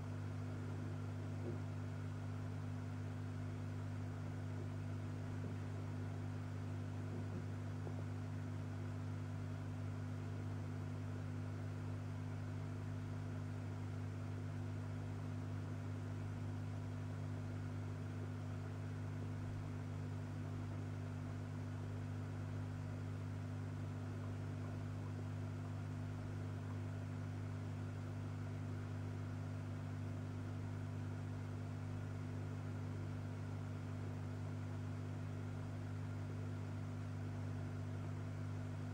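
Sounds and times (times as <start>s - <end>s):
aquarium pump humming: 0.0s - 38.9s.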